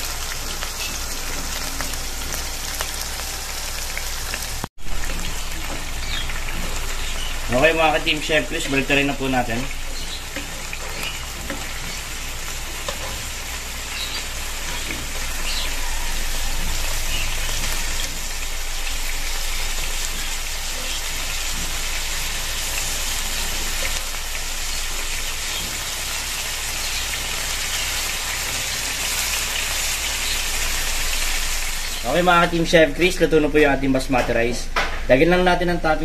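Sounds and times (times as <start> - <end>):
oil spattering crackles: 0.0 - 32.7
chicken sizzling in hot oil: 0.0 - 33.2.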